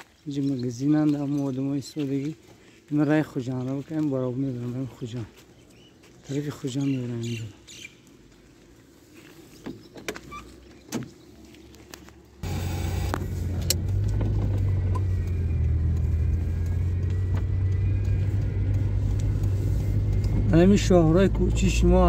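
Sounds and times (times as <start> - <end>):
car engine and road noise: 8.1 - 22.0.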